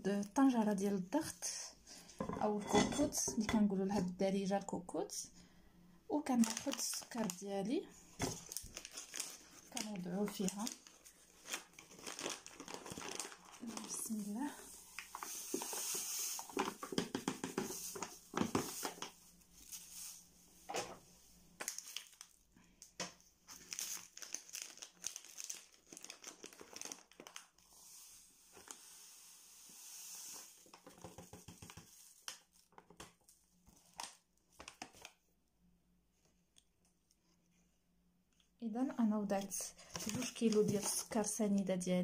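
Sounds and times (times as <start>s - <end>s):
paper bags crinkling: 6.2s - 7.5s, 8.2s - 16.9s, 21.6s - 22.4s, 23.5s - 27.6s, 39.8s - 41.2s
sugar pouring into a pot: 12.3s - 16.8s, 26.8s - 32.0s.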